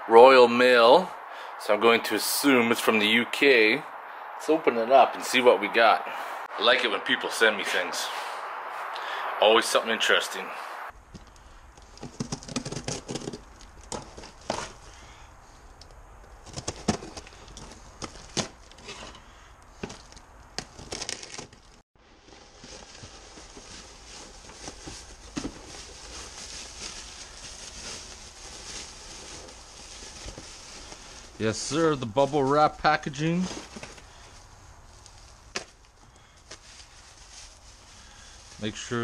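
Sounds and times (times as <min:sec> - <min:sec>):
bubble wrap crinkling: 0:20.8 - 0:32.2, 0:35.0 - 0:38.8.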